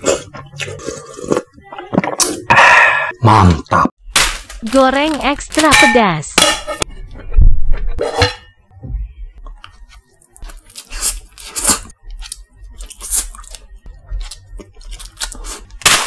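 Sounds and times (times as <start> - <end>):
person slurping noodles: 0.0 - 1.5
person chewing noodles: 9.7 - 15.8.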